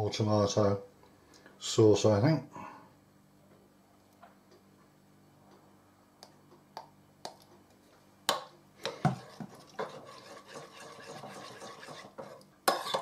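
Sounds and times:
spoon scraping bowl stirring sauce: 8.8 - 13.0.

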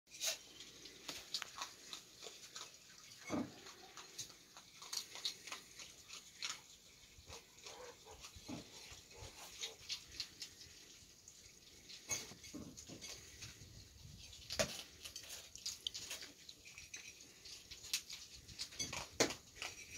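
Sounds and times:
animals chewing: 0.1 - 19.9
dishes clicking and clinking: 12.0 - 13.5.

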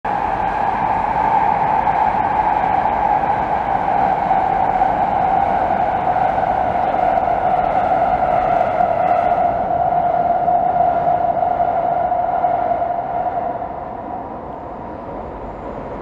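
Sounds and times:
train rushing across steel bridge: 0.1 - 16.0.

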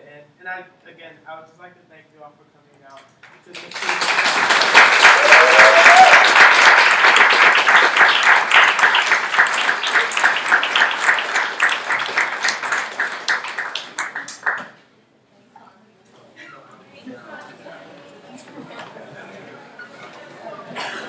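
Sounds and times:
audience clapping: 3.5 - 14.8.

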